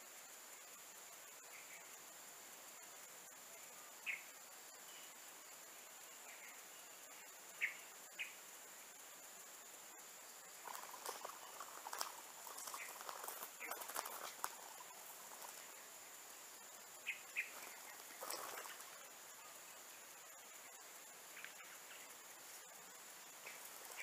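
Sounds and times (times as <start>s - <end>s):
dry leaves rustling and crackling: 10.6s - 15.8s, 17.5s - 19.0s.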